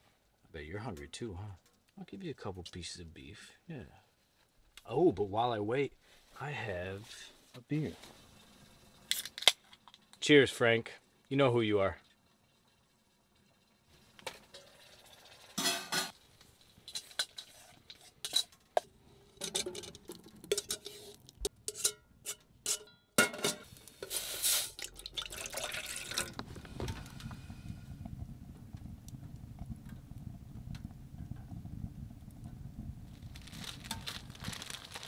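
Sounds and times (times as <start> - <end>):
metal pot and lid clinking: 15.6 - 16.2, 16.9 - 23.7
low steady rumble: 25.8 - 35.0.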